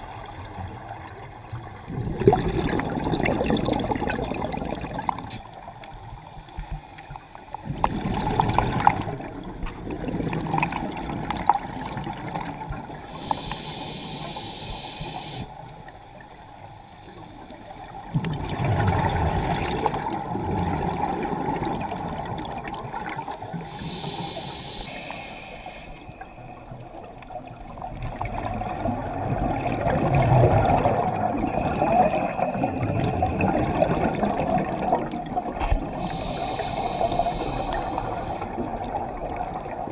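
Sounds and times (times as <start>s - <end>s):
bubbling exhalations underwater: 1.9s - 5.4s, 7.6s - 12.6s, 18.1s - 23.3s, 28.2s - 36.9s
hissing regulator inhalations: 5.3s - 7.6s, 12.7s - 18.3s, 22.9s - 26.6s, 35.6s - 38.6s.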